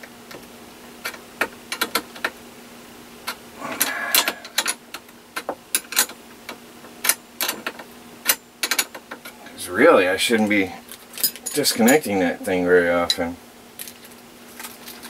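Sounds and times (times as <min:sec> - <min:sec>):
rasping rattle: 0:03.6 - 0:04.8.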